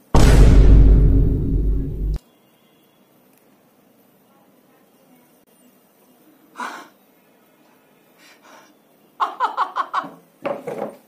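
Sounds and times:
faint breaths: 0:06.5 - 0:08.9.

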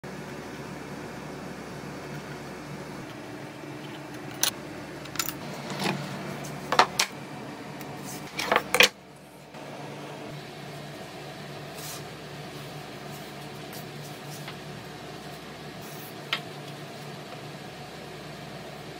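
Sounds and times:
steady background hum: 0:00.0 - 0:18.9.

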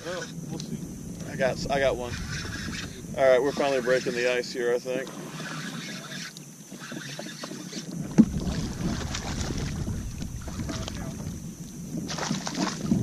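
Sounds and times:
wind buffeting microphone: 0:00.0 - 0:04.7, 0:07.9 - 0:13.0
water lapping against boat hull: 0:00.0 - 0:13.0.

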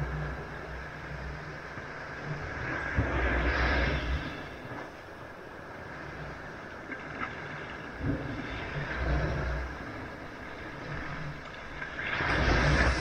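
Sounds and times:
sea waves washing on beach: 0:00.0 - 0:13.0.

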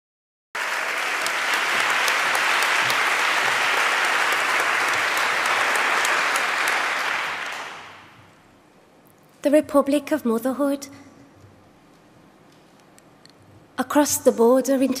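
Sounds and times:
audience applauding: 0:00.6 - 0:08.2.

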